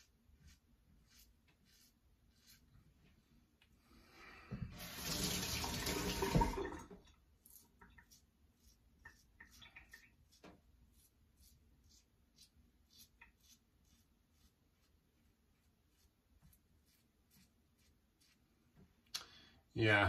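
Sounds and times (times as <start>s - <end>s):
water running from a tap: 4.7s - 7.2s
razor scraping through stubble: 7.4s - 15.0s.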